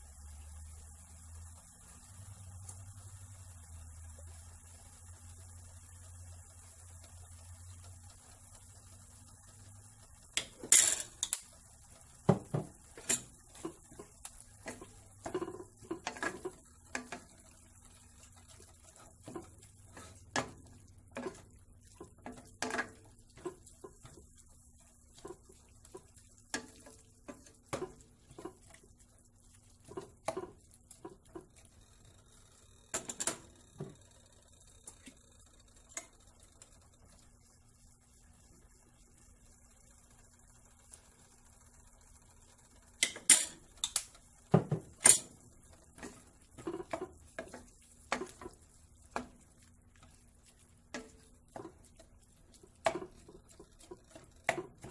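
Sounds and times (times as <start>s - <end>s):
faint steady hum: 0.0s - 54.9s
wooden spatula scraping saucepan: 12.3s - 31.7s, 45.7s - 54.9s.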